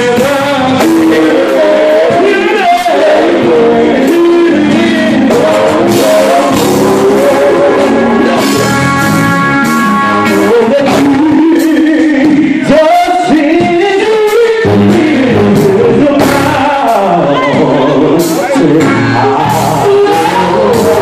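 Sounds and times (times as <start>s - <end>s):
band accompaniment: 0.0s - 21.0s
drums: 0.0s - 21.0s
male vocal group singing gospel: 0.0s - 21.0s.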